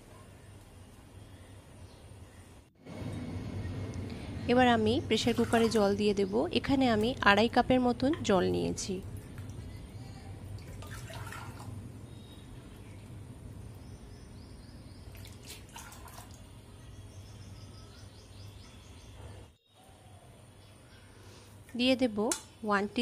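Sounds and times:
low steady hum: 0:00.0 - 0:23.0
water pouring and splashing: 0:05.2 - 0:06.0, 0:10.6 - 0:11.8, 0:15.1 - 0:16.5.

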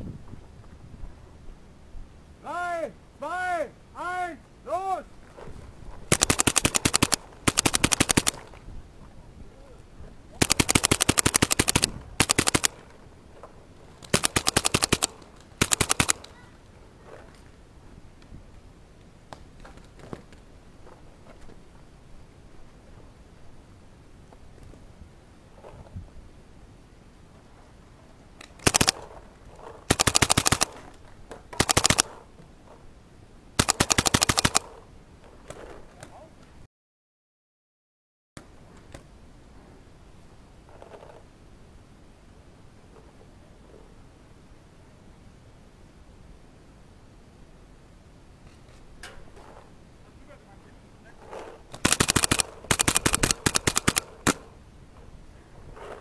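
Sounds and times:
paintball marker firing: 0:06.1 - 0:08.5, 0:10.4 - 0:12.8, 0:14.1 - 0:16.3, 0:28.7 - 0:29.0, 0:29.9 - 0:30.8, 0:31.6 - 0:32.2, 0:33.6 - 0:34.8, 0:51.8 - 0:54.5.

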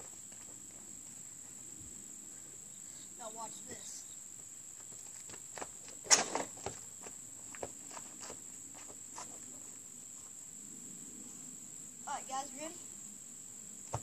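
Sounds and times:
footsteps on dirt: 0:00.0 - 0:01.2, 0:04.4 - 0:09.5
crickets trilling: 0:00.0 - 0:14.0.

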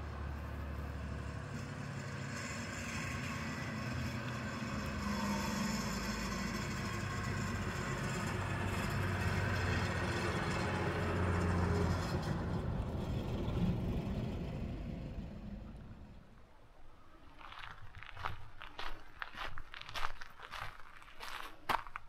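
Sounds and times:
diesel bus driving past: 0:00.0 - 0:16.5.

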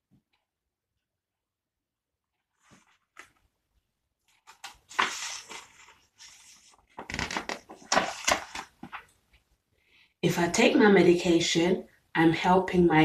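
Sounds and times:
book pages rustling: 0:02.3 - 0:03.6, 0:04.2 - 0:09.5.

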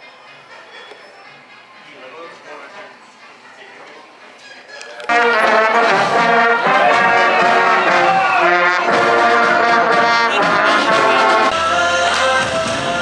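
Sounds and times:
brass instruments playing chords: 0:05.0 - 0:13.0
marching band playing loudly: 0:05.1 - 0:13.0.

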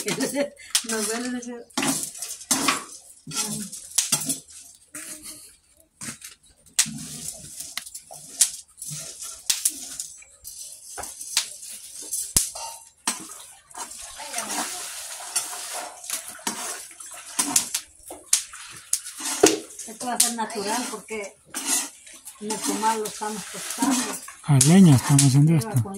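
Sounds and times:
metal spatula scraping on pan: 0:00.0 - 0:05.4, 0:06.8 - 0:17.8, 0:18.8 - 0:24.4
seeds rattling and hissing: 0:06.8 - 0:12.6.

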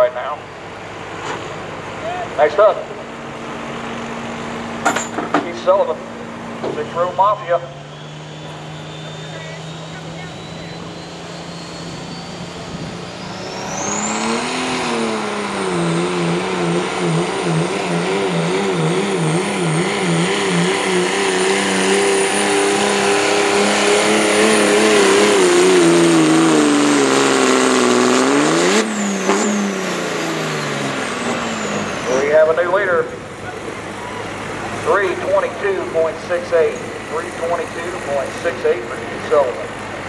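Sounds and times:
diesel engine under full load: 0:00.0 - 0:40.0
turbo whistle: 0:06.9 - 0:14.4.

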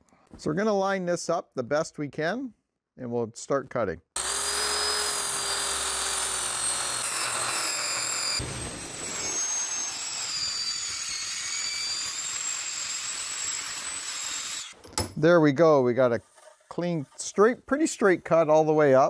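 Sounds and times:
circular saw cutting plastic pipe: 0:04.2 - 0:14.8, 0:15.5 - 0:18.8.

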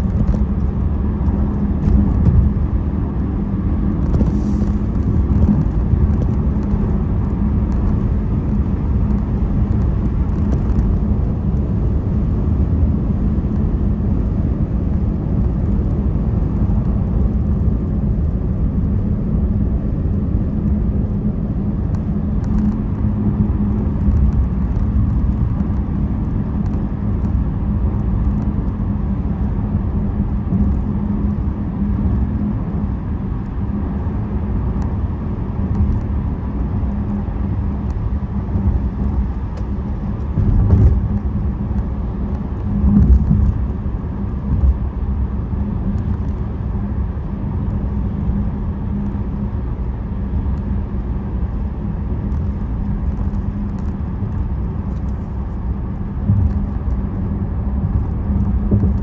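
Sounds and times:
car interior road rumble: 0:00.0 - 0:59.0.

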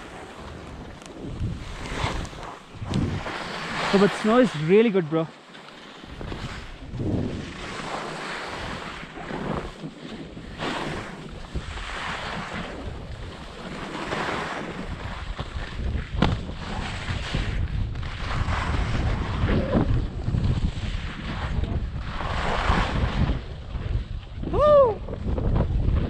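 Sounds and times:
wind buffeting microphone: 0:00.0 - 0:05.2, 0:06.1 - 0:26.0
skis scraping over snow: 0:00.0 - 0:24.4.

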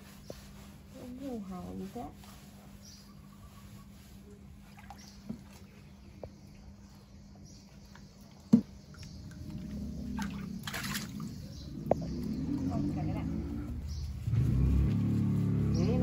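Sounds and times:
water sloshing in a tub: 0:03.6 - 0:07.0, 0:07.6 - 0:16.0.

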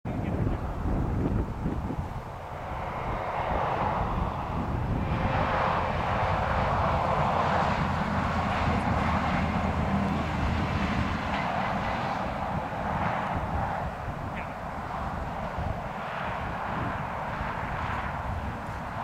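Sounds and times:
distant engine drone: 0:00.1 - 0:19.0.

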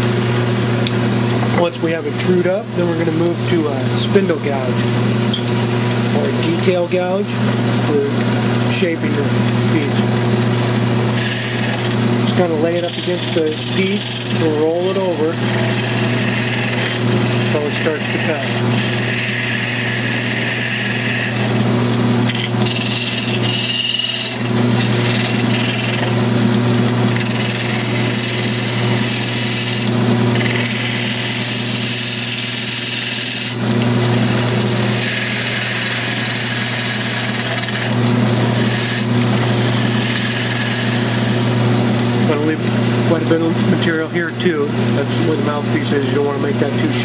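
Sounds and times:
lathe motor hum: 0:00.0 - 0:47.0
gouge cutting wood hiss: 0:34.2 - 0:43.9.

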